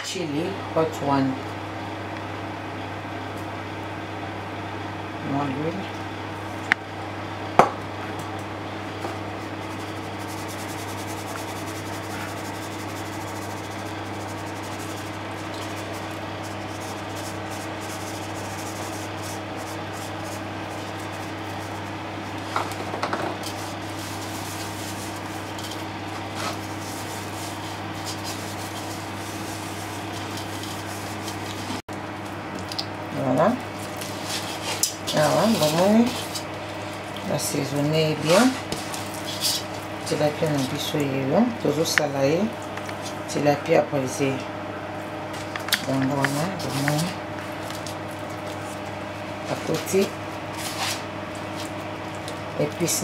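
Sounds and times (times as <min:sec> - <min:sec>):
steady low hum: 0:00.0 - 0:53.0
hands rubbing seasoning into fish: 0:09.5 - 0:22.5, 0:23.4 - 0:31.8.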